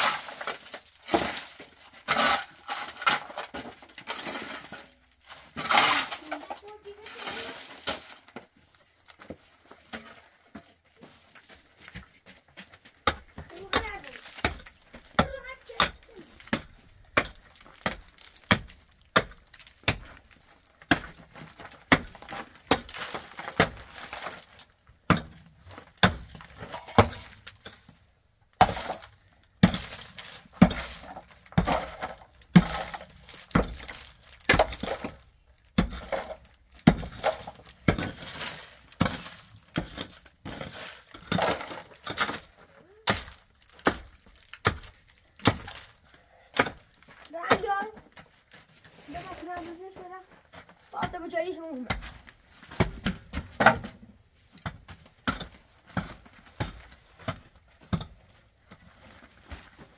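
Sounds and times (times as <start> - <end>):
scraping and rattling: 0.0 - 8.6.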